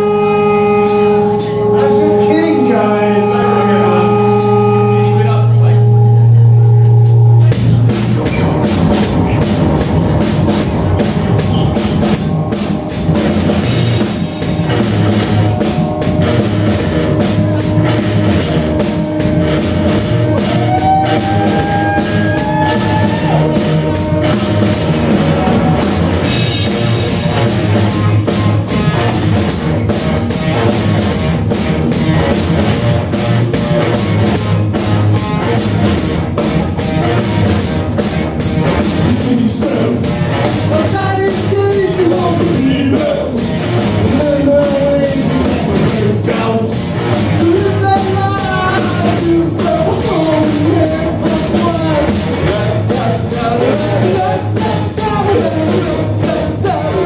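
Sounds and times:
high gliding tone: 0.0s - 28.2s
live rock band playing: 0.0s - 57.0s.

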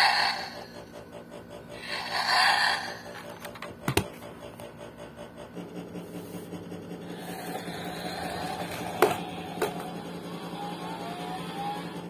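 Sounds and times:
toy car motor whirring: 0.0s - 1.0s, 1.7s - 3.7s, 7.0s - 12.0s
wheels rolling on wooden floor: 0.0s - 4.7s, 6.0s - 12.0s.

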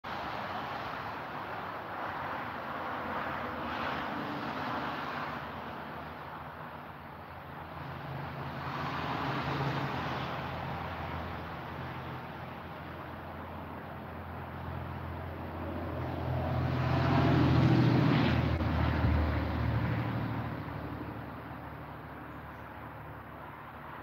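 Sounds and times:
vehicle driving past: 7.6s - 24.0s.

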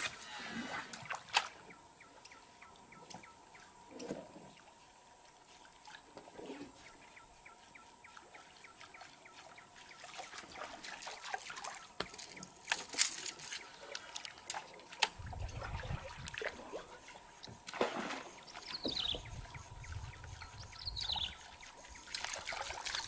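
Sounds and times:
lure splashing across water: 9.8s - 19.3s, 21.4s - 23.0s.

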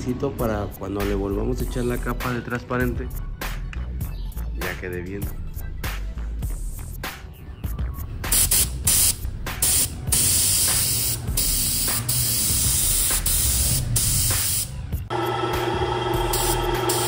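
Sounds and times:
paint spray gun hissing: 8.3s - 14.8s, 16.1s - 17.0s.

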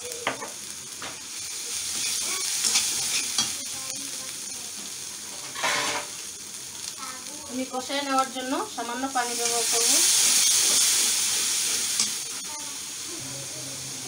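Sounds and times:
vegetables sizzling in hot oil: 0.0s - 14.0s
metal spatula scraping: 1.9s - 3.6s, 5.4s - 6.1s, 9.3s - 12.3s.

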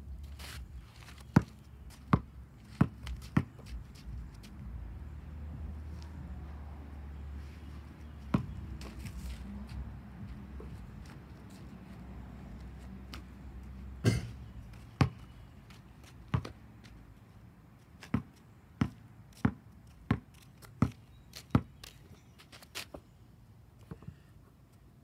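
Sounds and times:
basketball bouncing on asphalt: 0.7s - 6.4s, 8.0s - 11.3s, 13.0s - 17.0s, 18.0s - 21.9s.

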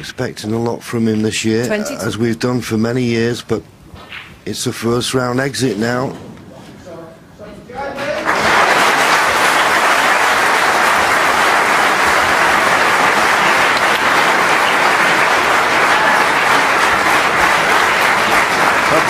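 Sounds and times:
audience applauding: 8.0s - 19.0s.

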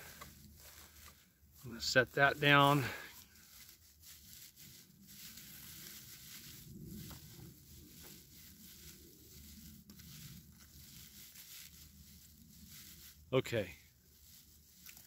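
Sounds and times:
dry bark rustling and crackling: 0.0s - 15.0s.

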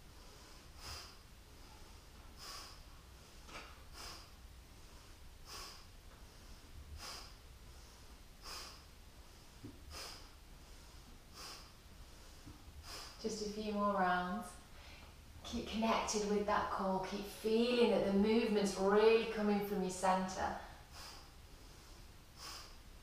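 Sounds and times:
woman breathing sharply: 0.2s - 13.2s, 14.6s - 15.2s, 20.6s - 23.0s.

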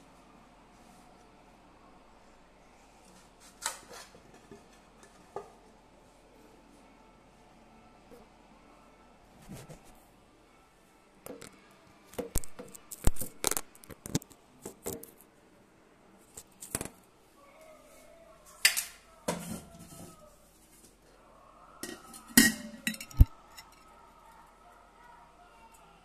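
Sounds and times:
knife and steel plate clinking: 21.8s - 23.8s.

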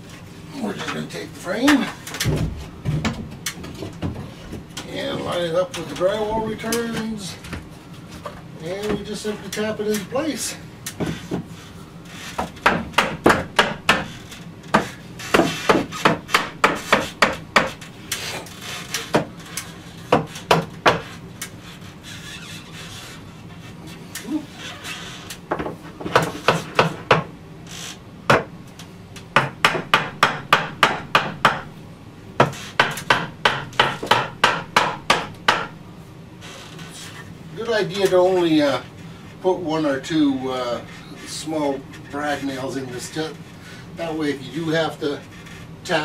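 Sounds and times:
hammer tapping wood: 12.4s - 17.9s, 20.1s - 21.1s, 25.5s - 27.3s, 28.3s - 28.5s, 29.4s - 31.7s, 32.4s - 35.8s.

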